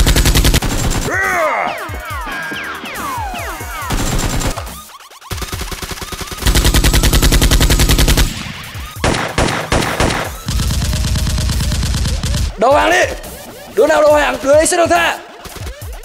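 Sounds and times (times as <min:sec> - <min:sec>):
machine gun fire bursts: 0:00.0 - 0:01.1, 0:03.9 - 0:12.6.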